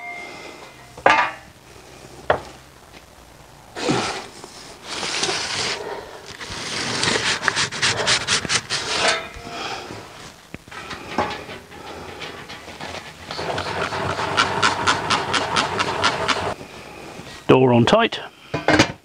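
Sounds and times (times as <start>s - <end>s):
metal peel scraping on stone: 6.4s - 9.4s.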